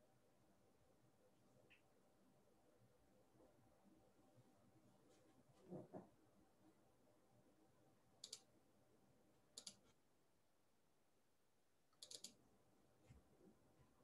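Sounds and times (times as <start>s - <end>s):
faint computer clicks: 8.2s - 8.5s, 9.5s - 9.8s, 11.9s - 12.4s.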